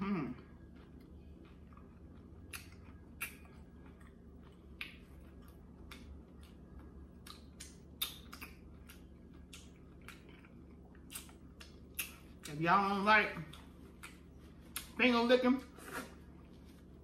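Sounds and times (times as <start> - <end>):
low steady hum: 0.0 - 17.0
wet mouth smacks and clicks: 2.4 - 3.4, 7.2 - 10.2, 11.1 - 12.2.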